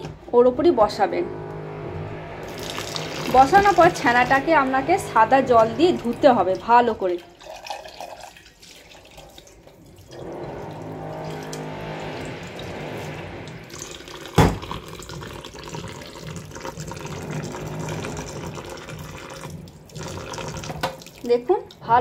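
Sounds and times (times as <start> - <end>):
tap water splashing into sink: 13.7 - 21.8.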